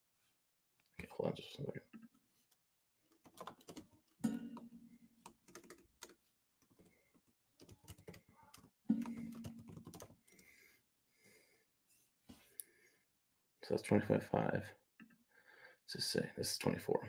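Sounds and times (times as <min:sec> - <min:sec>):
keyboard typing: 0:03.1 - 0:10.4.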